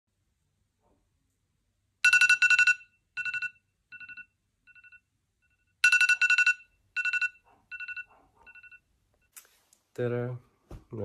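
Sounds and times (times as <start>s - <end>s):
phone alarm beeping: 2.0s - 8.9s.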